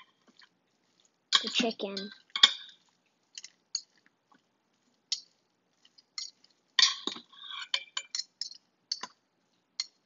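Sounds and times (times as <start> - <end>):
metal utensils clinking on steel pot: 1.3 - 4.0, 5.1 - 9.2, 9.8 - 10.0.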